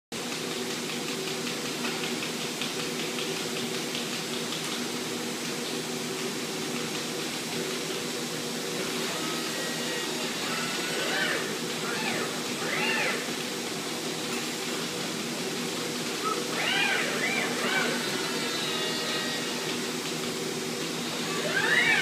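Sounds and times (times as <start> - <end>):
welding machinery hum and hiss: 0.2 - 22.0.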